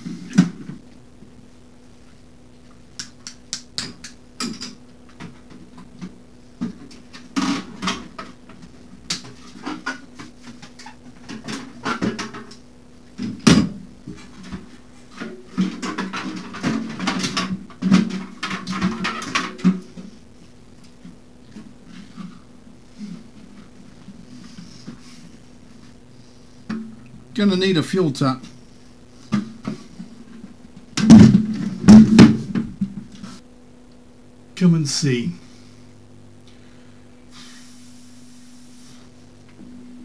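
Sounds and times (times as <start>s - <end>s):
faint steady hum: 0.0s - 40.0s
clattering and scraping: 14.1s - 20.2s.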